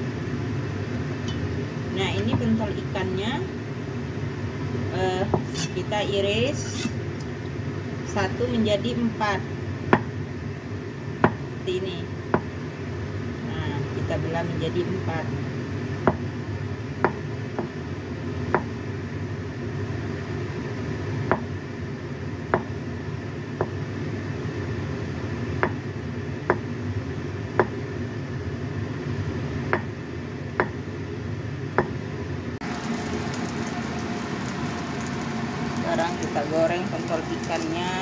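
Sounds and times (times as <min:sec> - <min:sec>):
oil sizzling in a wok: 0:00.0 - 0:38.0
steady low hum: 0:00.0 - 0:38.0
cleaver knocking on chopping board: 0:16.0 - 0:16.2, 0:21.3 - 0:21.5, 0:22.5 - 0:22.7, 0:25.6 - 0:25.8.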